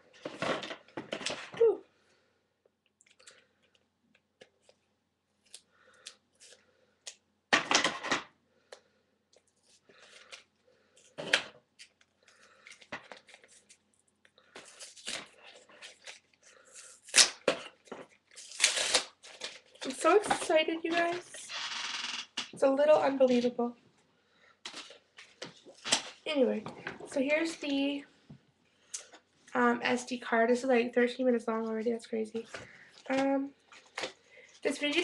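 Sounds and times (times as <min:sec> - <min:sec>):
packaging crinkling and rustling: 0:09.4 - 0:21.4, 0:32.4 - 0:35.0.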